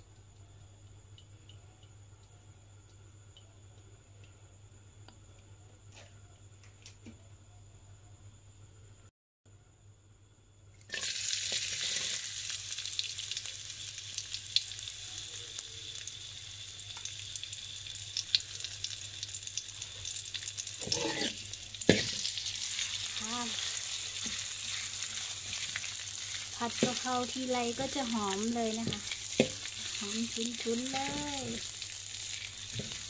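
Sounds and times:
food sizzling in hot oil: 10.8s - 33.0s
metal spatula scraping pan: 20.8s - 22.2s.

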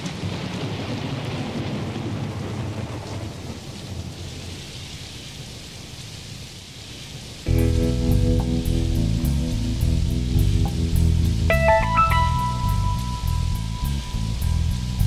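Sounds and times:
rolling thunder: 0.0s - 4.6s
rain hissing: 0.0s - 15.0s.

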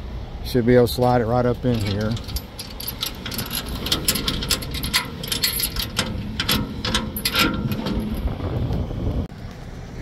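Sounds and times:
chain links clinking on metal: 1.6s - 8.3s.

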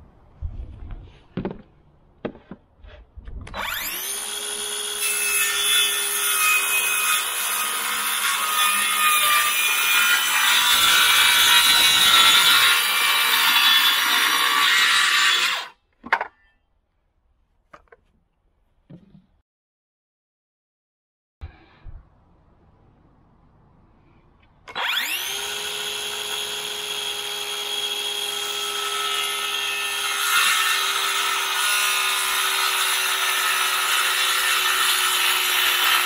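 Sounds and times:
circular saw cutting board: 2.2s - 16.5s, 24.7s - 36.0s.

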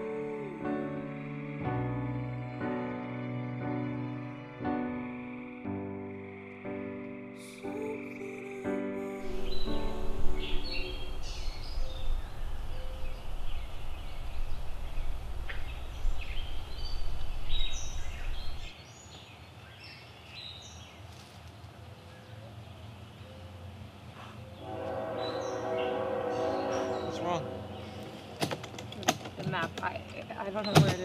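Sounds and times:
low rumble: 9.2s - 18.7s.

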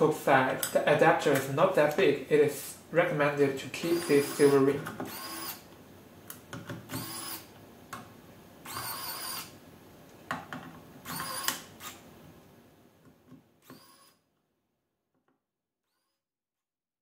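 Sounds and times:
electric screwdriver whirring: 3.9s - 5.7s, 6.9s - 7.5s, 8.6s - 9.6s, 11.0s - 12.0s, 13.6s - 14.2s.

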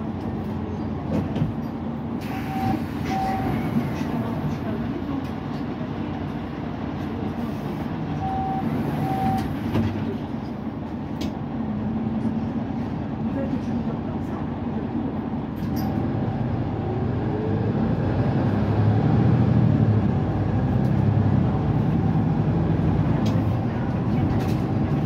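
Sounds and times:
bus diesel engine running: 0.0s - 25.0s
short beeps: 2.3s - 3.8s, 8.2s - 9.5s.

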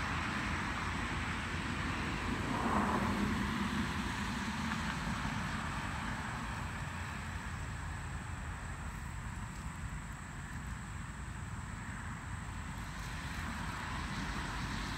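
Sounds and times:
steady low traffic rumble: 0.0s - 14.9s
car driving past: 2.0s - 7.3s.

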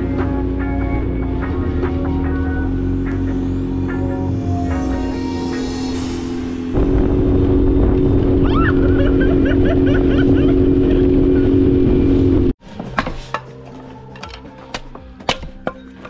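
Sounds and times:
outboard motor running: 6.8s - 12.5s.

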